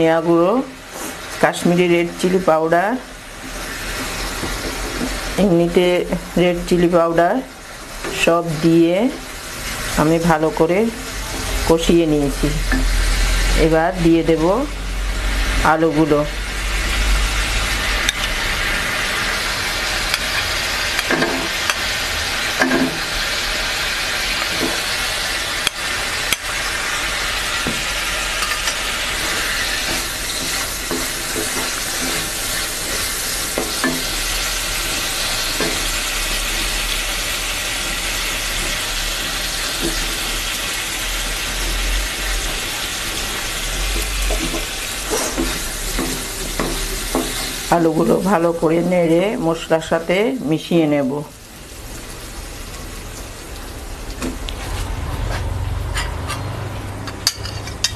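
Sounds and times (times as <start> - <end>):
potatoes sizzling in a pan: 0.0 - 55.1
wooden spatula scraping a pan: 27.6 - 36.8, 43.8 - 47.7.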